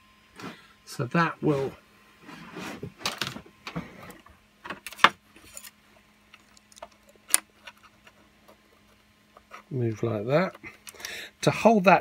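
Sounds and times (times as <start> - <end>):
plastic parts clicking and knocking: 6.3 - 9.7.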